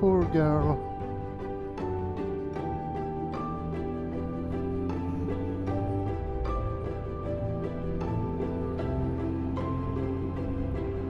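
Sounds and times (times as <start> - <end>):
slow soft instrumental music: 0.0 - 11.0.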